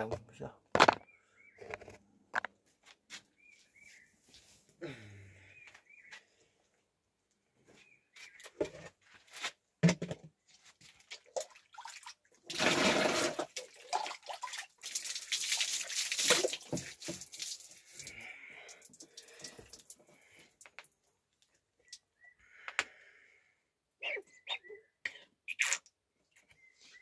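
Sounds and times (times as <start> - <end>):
water splashing and pouring: 10.8 - 18.2, 18.8 - 20.0.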